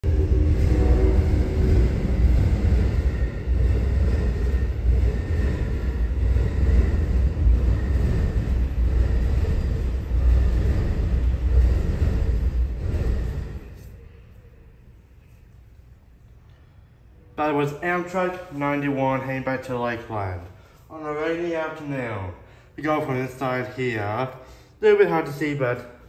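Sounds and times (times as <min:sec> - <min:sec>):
train rumbling past: 0:00.0 - 0:15.2.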